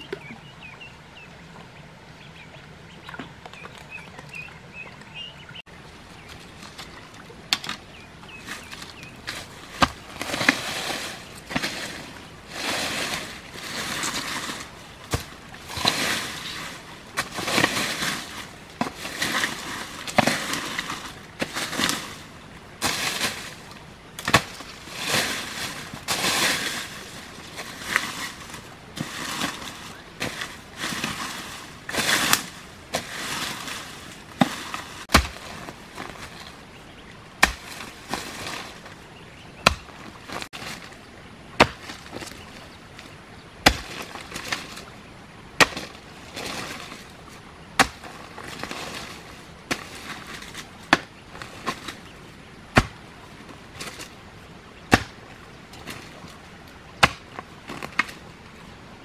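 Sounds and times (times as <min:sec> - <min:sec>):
earth scraping: 0:00.0 - 0:59.0
hoe chopping into soil: 0:24.2 - 0:27.0, 0:27.6 - 0:36.4, 0:37.4 - 0:38.7, 0:39.6 - 0:40.9, 0:41.6 - 0:42.4, 0:43.6 - 0:44.8, 0:45.6 - 0:47.0, 0:47.8 - 0:52.1, 0:52.7 - 0:53.0, 0:54.9 - 0:55.2, 0:57.0 - 0:58.2.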